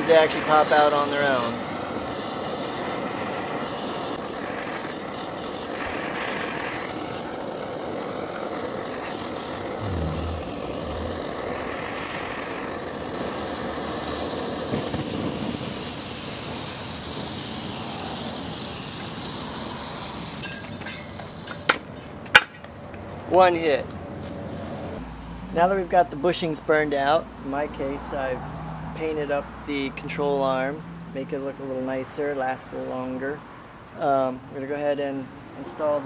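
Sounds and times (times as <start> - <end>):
blowtorch hissing: 0.3 - 20.4.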